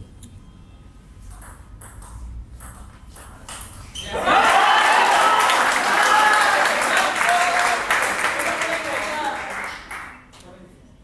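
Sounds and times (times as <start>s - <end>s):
ping pong ball clicking: 1.3s - 3.8s
spectators cheering and shouting: 4.1s - 7.9s.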